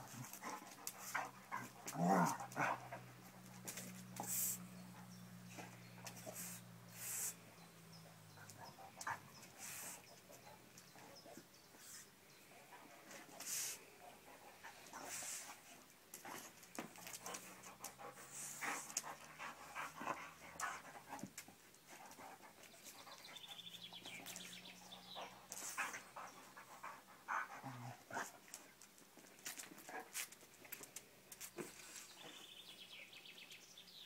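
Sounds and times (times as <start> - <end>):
ball and paws on stone paving: 0.0 - 7.4, 13.0 - 26.8, 27.4 - 32.6
dog panting: 16.3 - 28.4.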